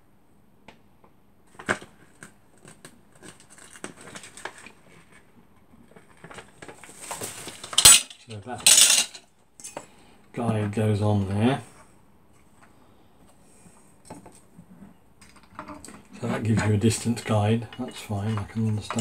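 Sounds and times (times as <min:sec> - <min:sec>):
metal tools clinking and knocking: 0:07.4 - 0:09.8, 0:15.2 - 0:19.0.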